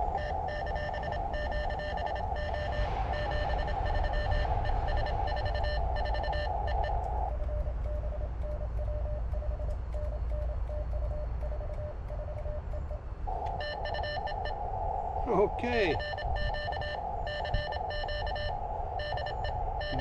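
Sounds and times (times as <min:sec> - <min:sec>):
morse code beeping: 0:00.0 - 0:14.6, 0:15.9 - 0:20.0
radio band hiss: 0:15.2 - 0:16.8.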